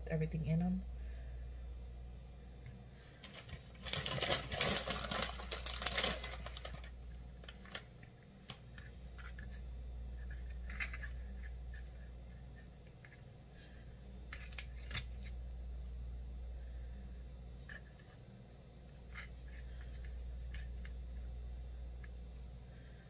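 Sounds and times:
low steady hum: 0.0 - 23.0
plastic bag crinkling: 3.2 - 8.0.

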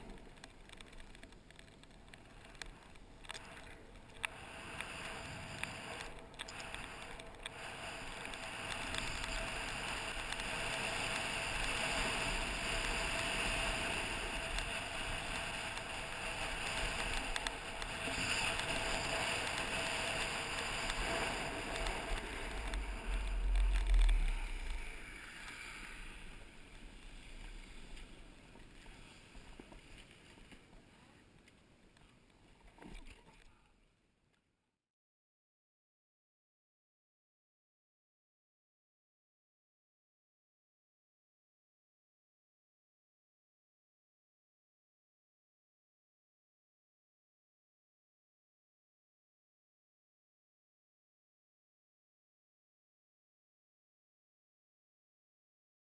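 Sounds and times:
snowboard hissing on snow: 6.6 - 26.4
deep rumble: 9.1 - 28.2.

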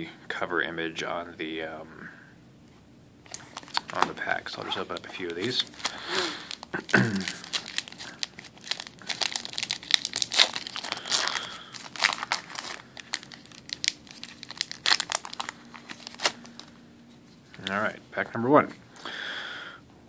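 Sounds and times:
foil wrapper crinkling: 3.3 - 16.8.

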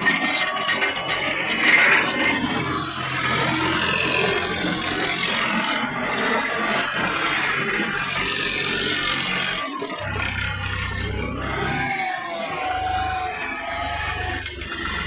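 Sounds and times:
machine rattling and clattering: 0.0 - 11.4
tractor diesel engine running: 0.0 - 15.0.

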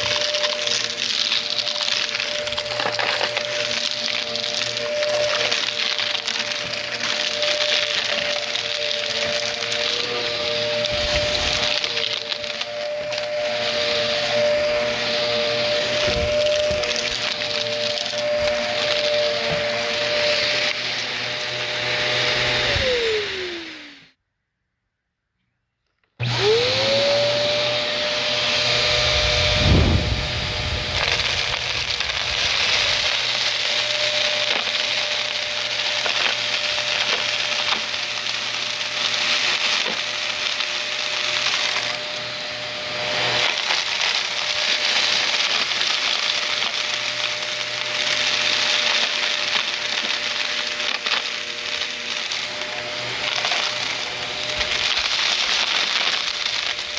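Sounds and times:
debris crackling in vacuum: 0.0 - 21.0, 28.6 - 42.0, 43.0 - 56.9
vacuum cleaner motor whining: 0.0 - 24.2, 26.1 - 56.9
low thud: 29.5 - 31.4.

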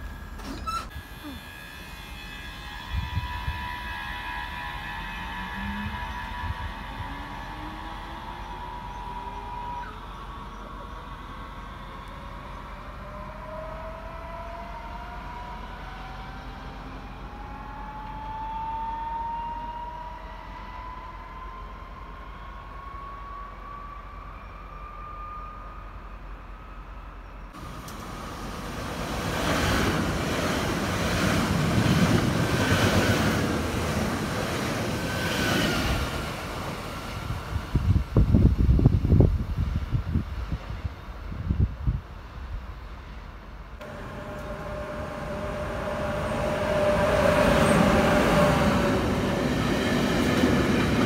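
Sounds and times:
electric train motor whine: 0.0 - 21.4, 43.8 - 50.8
electric train rumbling on rails: 0.0 - 51.0.

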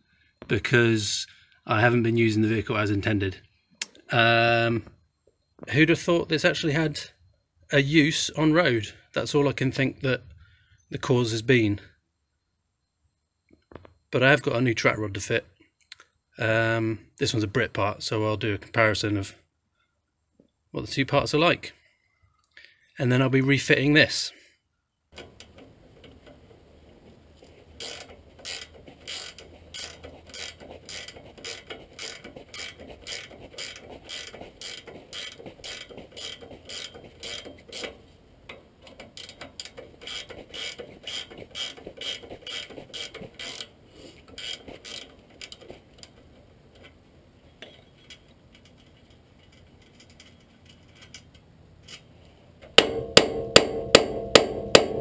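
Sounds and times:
ratchet spanner clicking: 27.8 - 45.6
hammer blows on metal: 52.8 - 55.0.

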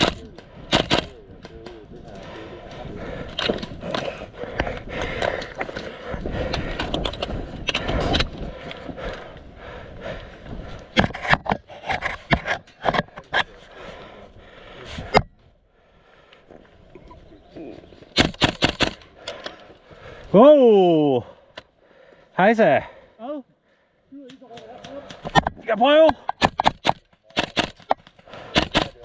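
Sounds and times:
sharp clicks and knocks: 10.9 - 13.5.

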